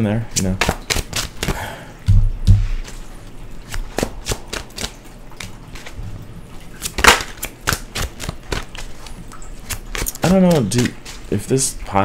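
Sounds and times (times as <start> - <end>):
cards shuffling with light clicks: 0.3 - 1.6, 2.6 - 6.0, 6.8 - 11.6.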